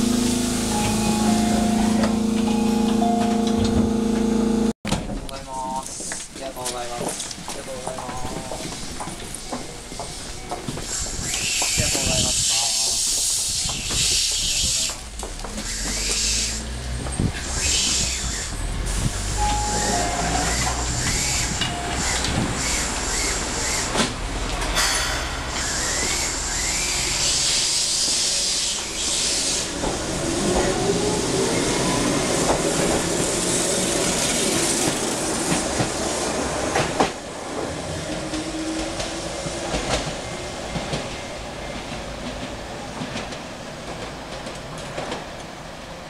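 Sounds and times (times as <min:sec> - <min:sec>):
train motor whine: 0:00.0 - 0:04.7, 0:15.4 - 0:30.0.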